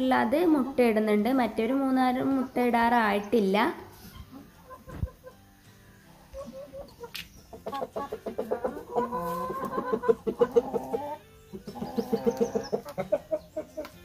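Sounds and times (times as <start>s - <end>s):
chickens clucking: 0.1s - 14.0s.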